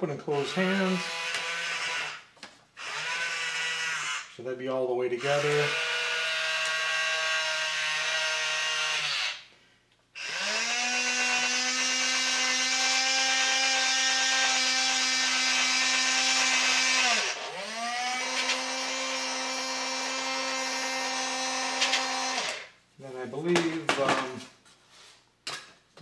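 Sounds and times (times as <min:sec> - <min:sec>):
small electric motor whining: 0:00.5 - 0:04.3, 0:05.2 - 0:09.5, 0:10.2 - 0:22.7.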